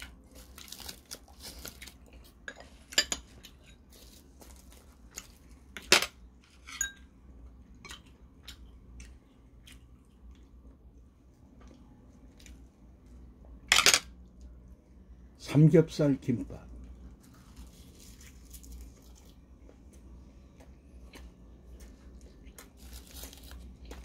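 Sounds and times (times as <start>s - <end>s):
utensils clinking on ceramic bowls: 5.8s - 7.1s
dried seaweed rustling: 22.8s - 23.9s.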